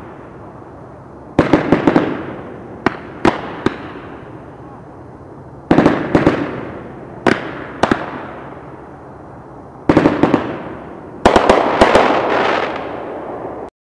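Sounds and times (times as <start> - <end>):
firework bangs: 0.0 - 0.4, 1.3 - 4.6, 5.6 - 8.8, 9.8 - 13.7
firework crackling reports: 0.0 - 13.7.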